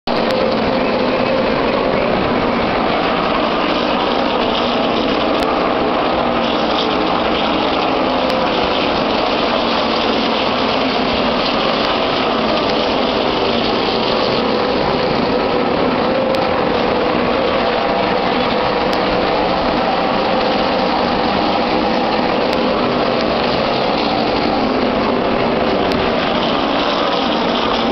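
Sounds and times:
race cars roaring: 0.0 - 27.9.

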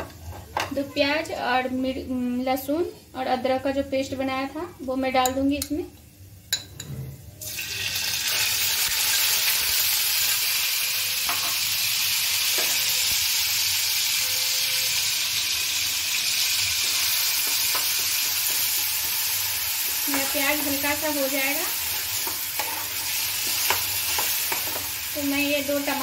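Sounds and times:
paste sizzling in hot oil: 7.4 - 26.0.

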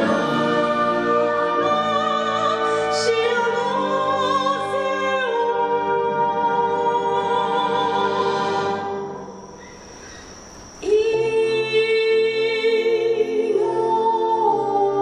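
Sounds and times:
soprano singing: 0.0 - 9.3, 10.8 - 15.0.

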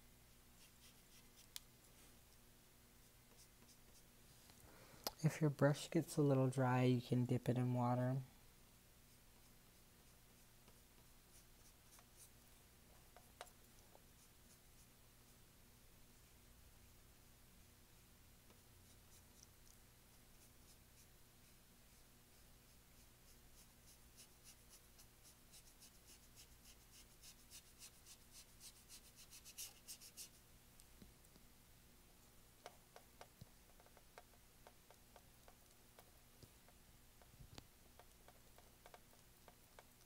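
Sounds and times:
paintbrush scrubbing on canvas: 0.6 - 2.3, 14.0 - 15.4, 18.8 - 30.4.

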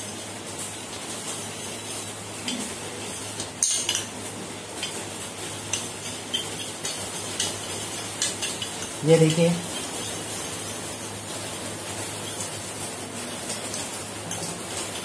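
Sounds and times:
spoon clinking in metal bowl: 3.6 - 4.1, 5.7 - 10.2.

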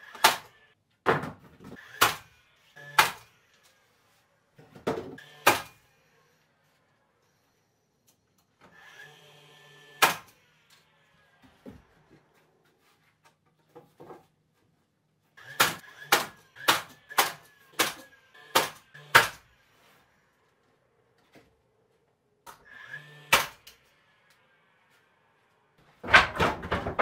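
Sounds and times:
nail gun shots into wood: 0.1 - 0.5, 2.0 - 2.3, 2.9 - 3.3, 5.4 - 5.8, 10.0 - 10.3, 15.5 - 19.4, 23.3 - 23.7.

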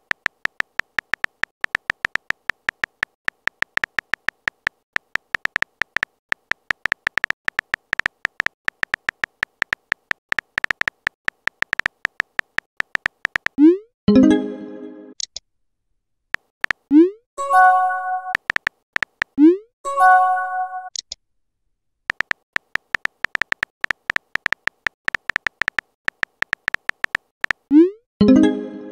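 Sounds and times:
phone keyboard typing clicks: 0.0 - 13.6, 16.4 - 16.9, 18.2 - 19.4, 22.1 - 27.7.

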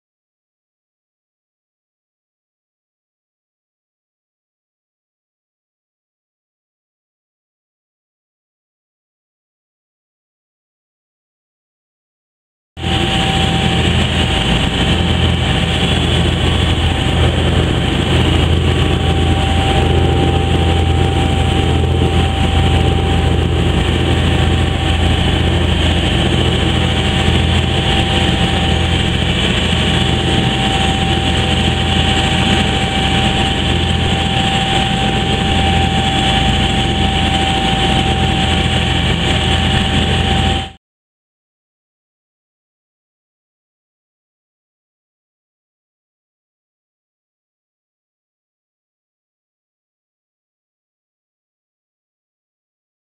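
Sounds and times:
boat engine droning: 12.8 - 40.8.

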